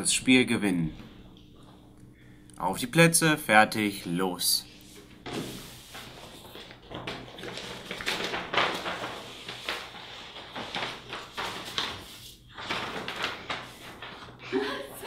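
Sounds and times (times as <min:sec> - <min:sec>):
paper rustling and crackling: 0:05.0 - 0:15.0
paper pieces spilling onto table: 0:05.3 - 0:14.5.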